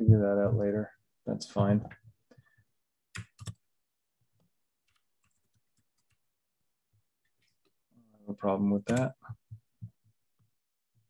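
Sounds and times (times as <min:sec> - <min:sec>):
computer mouse and key clicks: 0:03.1 - 0:03.6, 0:04.8 - 0:06.2, 0:08.8 - 0:10.0.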